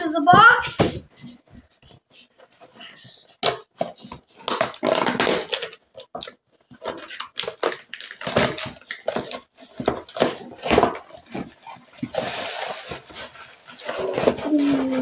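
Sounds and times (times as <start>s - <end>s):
cardboard box scraping and crinkling: 11.1s - 15.0s.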